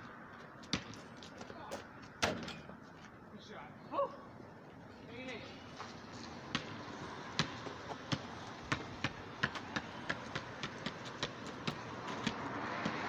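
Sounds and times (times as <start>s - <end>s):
basketball dribbling on pavement: 0.6s - 1.5s, 6.4s - 13.0s.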